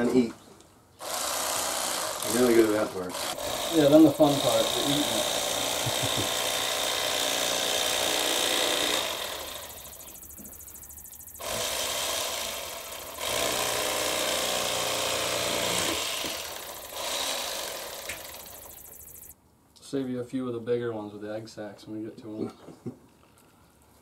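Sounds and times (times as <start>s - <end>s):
electric fillet knife buzzing: 1.0s - 19.3s.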